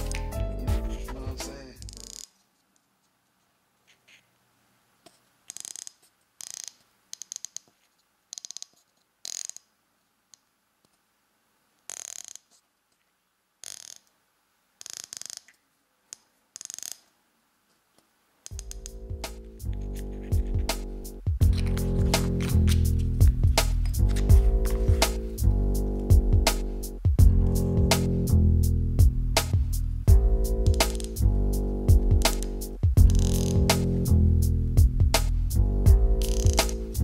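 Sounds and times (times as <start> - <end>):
scope turret clicking and rasping: 5.5 - 9.7.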